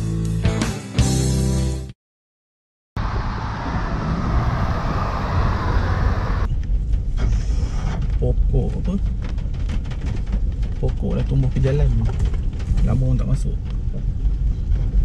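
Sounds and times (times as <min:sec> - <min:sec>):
highway traffic noise: 0:03.0 - 0:07.5
car rumbling on dirt track: 0:03.0 - 0:15.0
knocks and rattles: 0:06.5 - 0:15.0.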